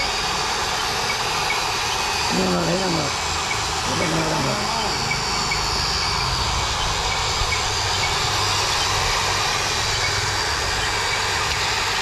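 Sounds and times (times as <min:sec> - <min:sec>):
toy excavator electric motors: 0:00.0 - 0:12.0.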